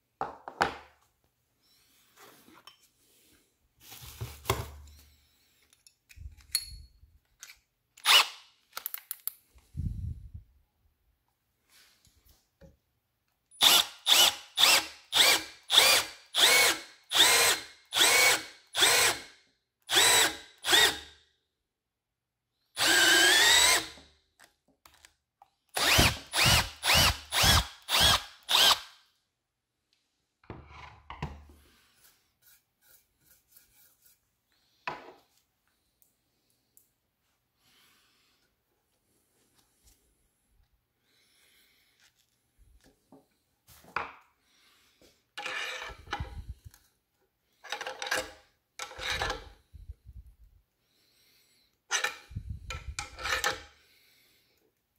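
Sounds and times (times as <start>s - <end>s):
cordless drill boring into wood: 8.0s - 8.4s, 13.6s - 19.3s, 19.9s - 21.1s, 22.8s - 24.0s, 25.7s - 29.0s.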